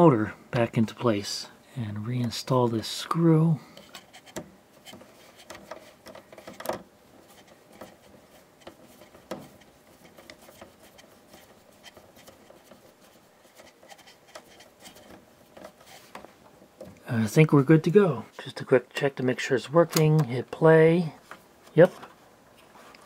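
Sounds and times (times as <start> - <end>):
screwdriver scraping in screw: 13.4 - 15.2.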